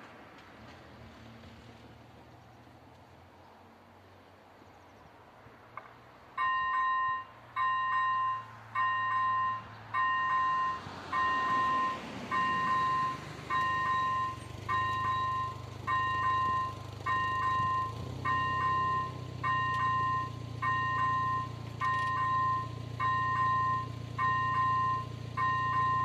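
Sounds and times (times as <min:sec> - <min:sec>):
level crossing two-tone beep: 0:06.4 - 0:26.0.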